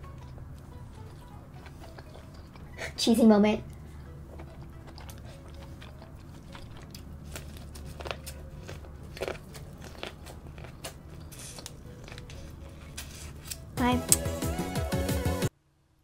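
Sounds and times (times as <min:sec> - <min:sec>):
chewing: 0:00.0 - 0:13.8
mouth sounds: 0:00.0 - 0:14.4
crunchy bites into corn: 0:04.4 - 0:13.7.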